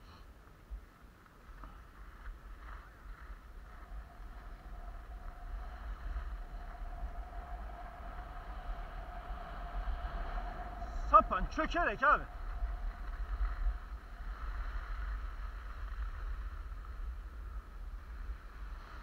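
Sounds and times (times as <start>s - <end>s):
wind rumbling on microphone: 0.0s - 19.0s
skis scraping over snow: 0.8s - 6.9s, 10.2s - 19.0s.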